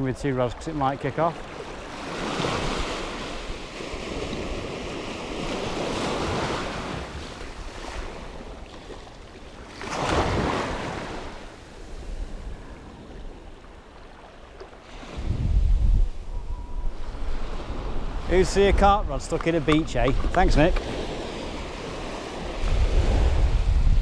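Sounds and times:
small waves breaking on shore: 0.0 - 24.0
wind buffeting microphone: 14.9 - 24.0.

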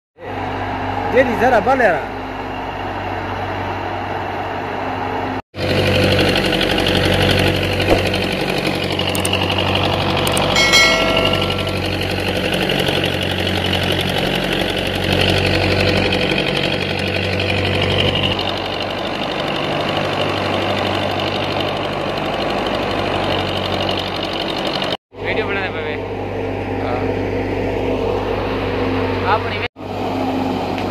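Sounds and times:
diesel tractor engine under load: 5.6 - 25.0
thresher churning: 5.6 - 25.0.

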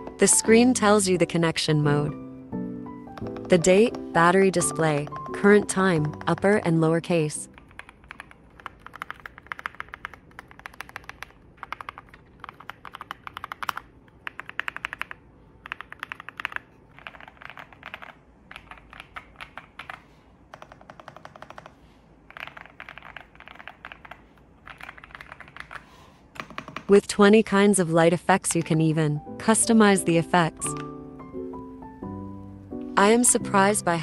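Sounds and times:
mechanical keyboard typing: 3.1 - 6.8, 7.5 - 25.8, 26.4 - 27.0.

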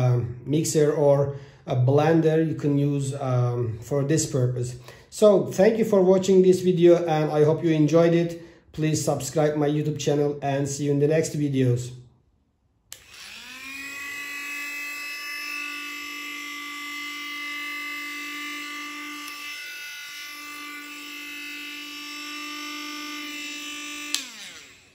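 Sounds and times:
small motor high whine: 12.9 - 24.9.

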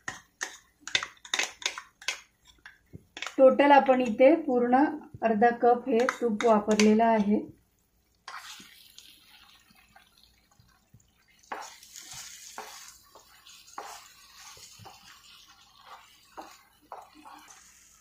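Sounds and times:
spatula scraping pan: 0.0 - 3.4, 8.2 - 8.7, 11.5 - 18.0
faint sizzle: 0.0 - 18.0.

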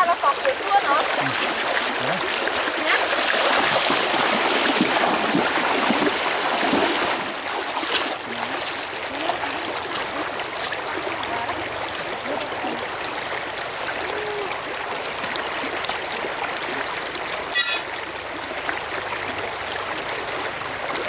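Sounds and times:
hands working in water: 0.0 - 18.0
stream water over stones: 0.0 - 21.0.

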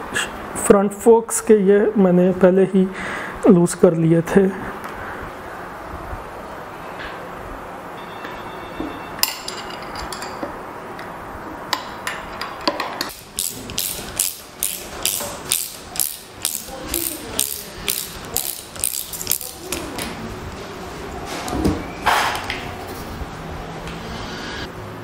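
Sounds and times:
ratchet wrench clicking: 13.1 - 19.6.

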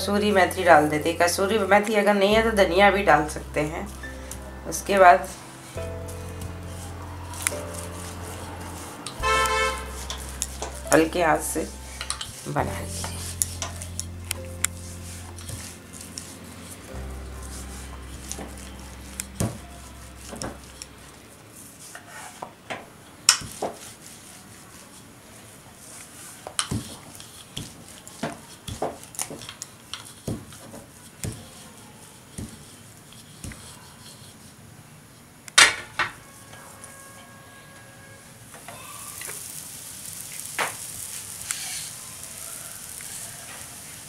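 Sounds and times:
rolling pin knocking on wooden board: 32.4 - 32.6.

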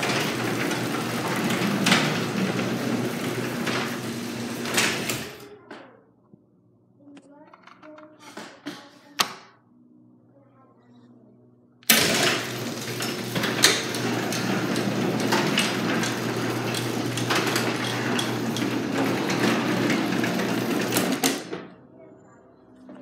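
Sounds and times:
garage door opener clunk: 0.0 - 5.5, 11.9 - 21.8
garage door opener motor: 0.0 - 5.5, 11.9 - 21.8.

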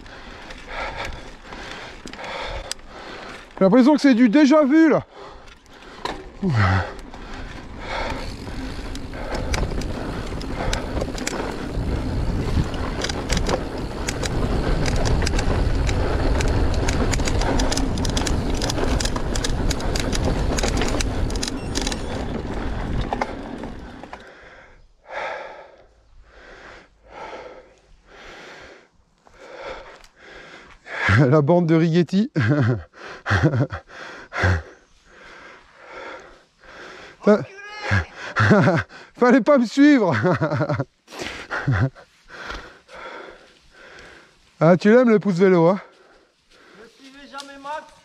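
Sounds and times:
bike tyre noise: 0.0 - 31.2
rider breathing heavily: 0.0 - 31.4, 32.3 - 39.2, 39.8 - 47.2
bike rattling and knocking: 0.1 - 24.3, 37.9 - 38.8
wind rushing on microphone: 8.2 - 23.8.

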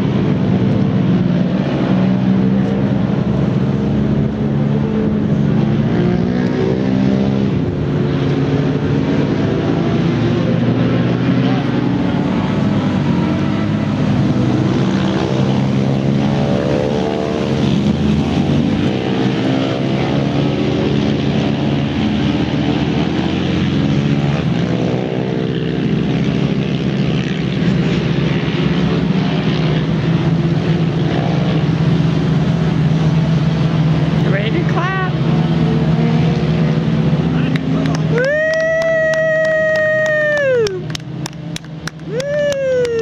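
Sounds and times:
sports car engine running: 25.8 - 43.0.

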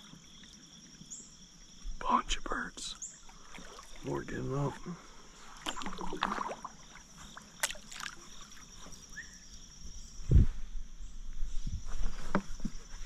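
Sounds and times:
paddle splashing in water: 3.1 - 4.8, 5.4 - 8.9.

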